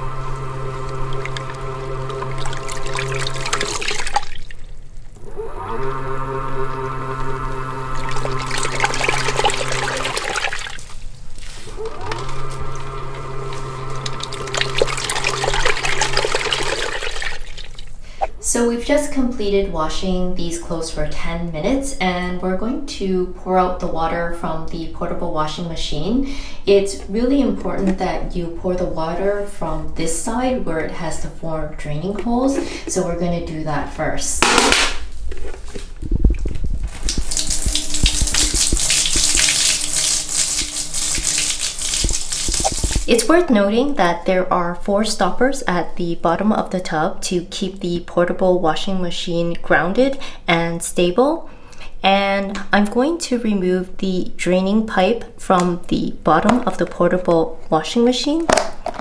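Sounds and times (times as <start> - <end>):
electric motor hum: 0.0 - 4.0, 5.1 - 10.4, 11.6 - 17.4, 36.2 - 43.2
water churning and splashing: 0.8 - 4.7, 7.8 - 11.0, 12.9 - 17.9, 37.0 - 43.2.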